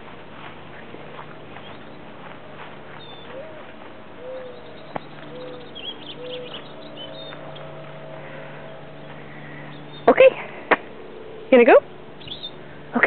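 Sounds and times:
steady low hum: 0.0s - 13.0s
dove cooing: 2.9s - 10.0s
faint high bird chirps: 2.9s - 10.2s, 12.2s - 12.6s.

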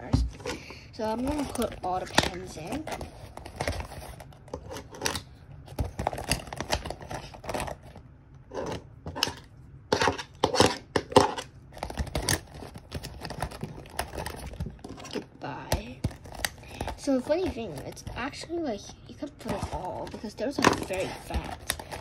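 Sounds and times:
plastic pouch crinkling: 1.0s - 8.0s, 15.8s - 22.0s.

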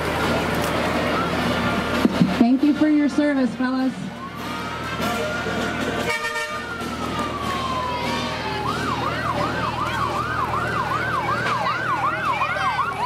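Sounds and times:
emergency siren wailing and yelping: 4.1s - 13.0s.

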